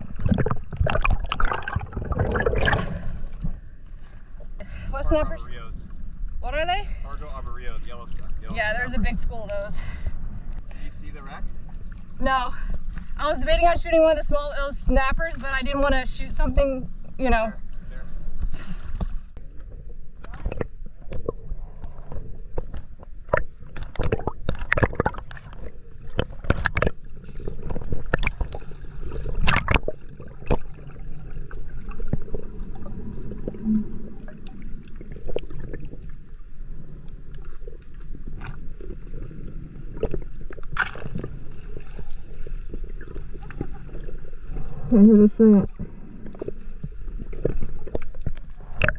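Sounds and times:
ocean water splashing: 0.0 - 5.6, 17.6 - 48.9
underwater wash: 0.0 - 48.9.

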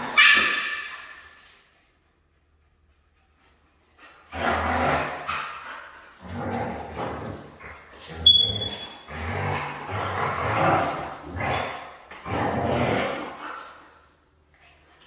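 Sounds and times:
dog growling: 4.3 - 13.6.

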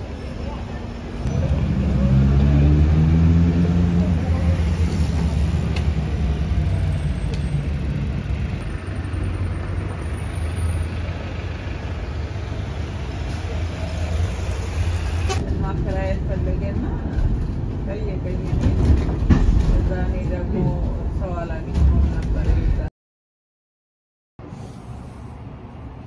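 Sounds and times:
bus and car engines rumbling: 0.0 - 22.9, 24.4 - 26.0.

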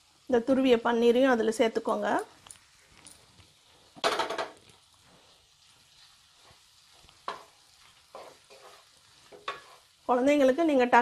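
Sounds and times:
spatula scraping a frying pan: 5.0 - 10.1.

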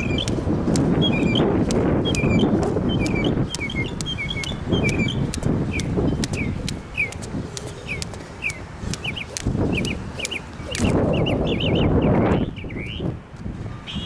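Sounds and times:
birds chirping: 0.0 - 0.4, 1.0 - 13.1
jump rope ticking on court: 0.0 - 11.4.

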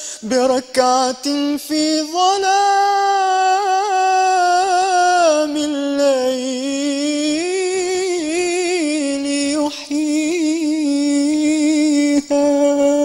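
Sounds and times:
singer breathing: 0.0 - 0.3
young man singing a cappella: 0.0 - 13.0.

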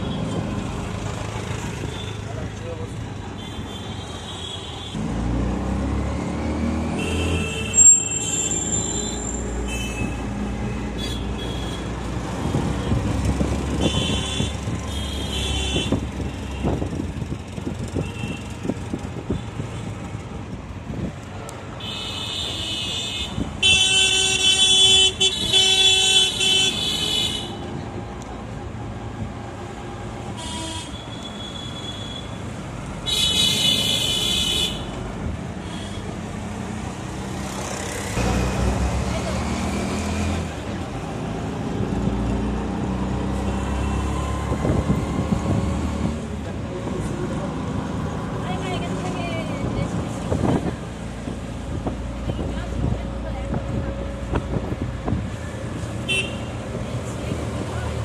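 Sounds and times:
road and traffic noise: 0.0 - 58.0
vehicle horns honking: 7.0 - 10.2, 13.7 - 16.0, 21.8 - 27.6, 30.4 - 32.4, 56.0 - 56.6.

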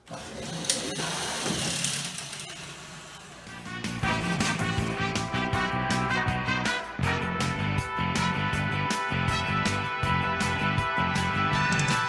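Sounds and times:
small electric motors whirring: 0.1 - 3.4
music: 3.4 - 12.0.

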